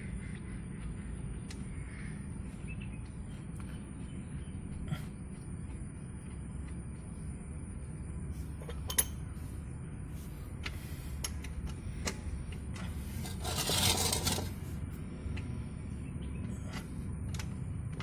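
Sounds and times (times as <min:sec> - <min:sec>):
scraping rustle: 0:12.9 - 0:14.8.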